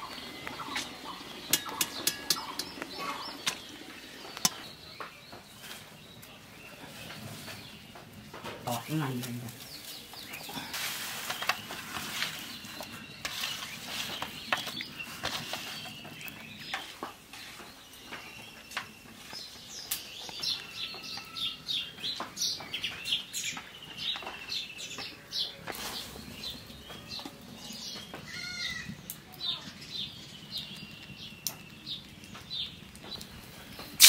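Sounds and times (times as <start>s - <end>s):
small birds chirping and trilling: 0.0s - 34.0s.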